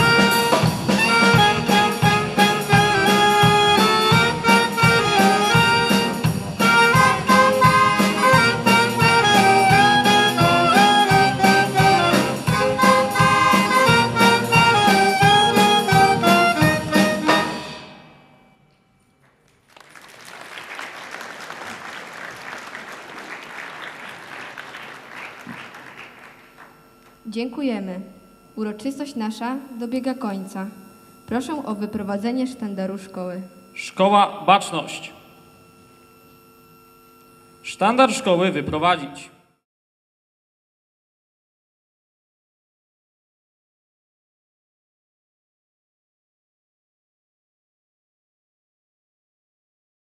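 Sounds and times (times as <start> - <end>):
wind band playing lively piece: 0.0 - 17.9
applause: 19.2 - 27.2.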